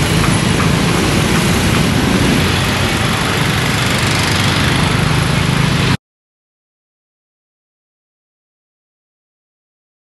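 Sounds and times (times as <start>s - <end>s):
street traffic engine rumble: 0.0s - 6.0s.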